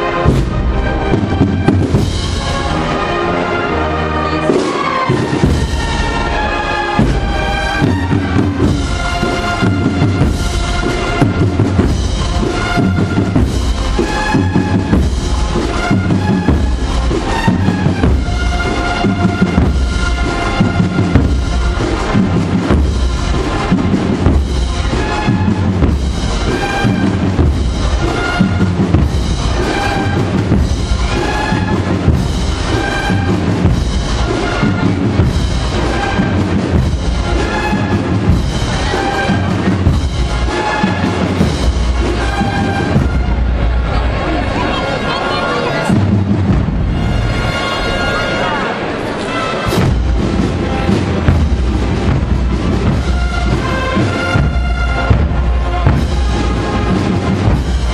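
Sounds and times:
brass band march: 0:00.0 - 0:57.9
bass drum beat: 0:49.7 - 0:57.9.

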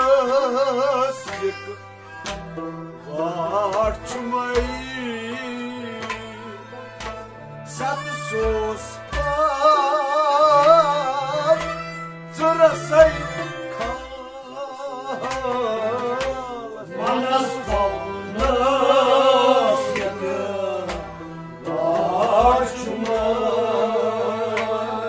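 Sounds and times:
harmonium chords: 0:00.0 - 0:25.0
man singing with vibrato: 0:03.0 - 0:06.8, 0:07.7 - 0:20.9, 0:21.6 - 0:25.0.

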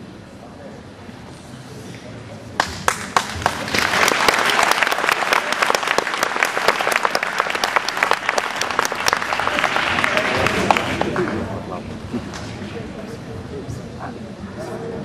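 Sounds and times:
audience applauding: 0:02.6 - 0:12.5.

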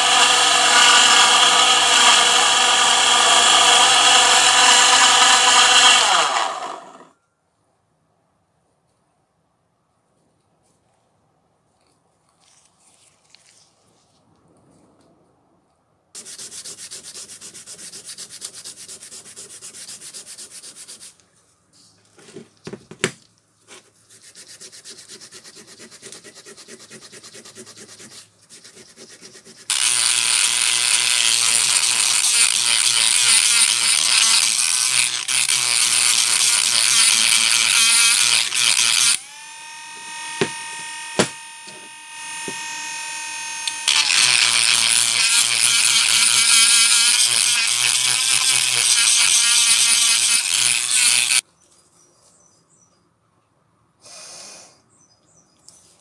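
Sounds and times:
rotary tool grinding metal: 0:00.0 - 0:07.1, 0:29.7 - 0:51.4
sanding a steel hammer head: 0:16.2 - 0:21.2, 0:24.1 - 0:39.2, 0:40.0 - 0:42.9, 0:43.9 - 0:51.4.

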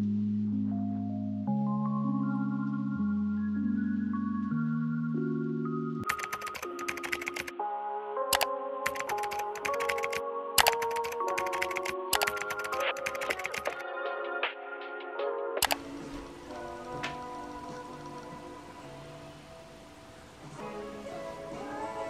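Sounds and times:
mellow instrumental music: 0:00.0 - 0:22.0
keyboard typing clicks: 0:06.0 - 0:07.5, 0:08.3 - 0:13.8, 0:15.6 - 0:16.3.

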